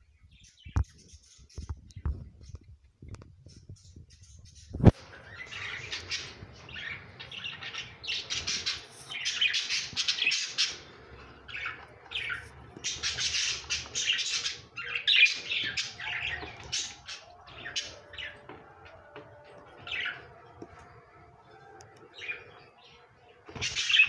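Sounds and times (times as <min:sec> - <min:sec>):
budgerigar chicks chirping: 0:03.8 - 0:21.0.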